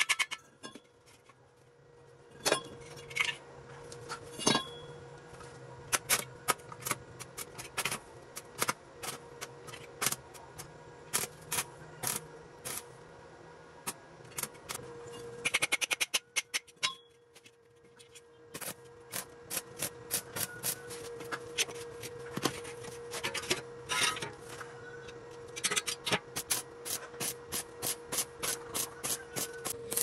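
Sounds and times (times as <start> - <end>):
arc welder crackling: 5.8 - 13.0, 18.5 - 23.3, 25.4 - 30.0.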